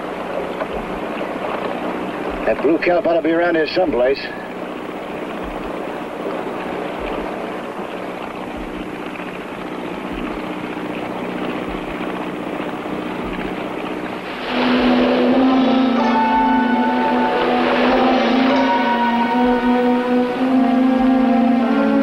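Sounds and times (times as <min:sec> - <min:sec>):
motorboat engine running: 0:00.0 - 0:22.0
water noise: 0:00.0 - 0:22.0
music: 0:13.2 - 0:22.0.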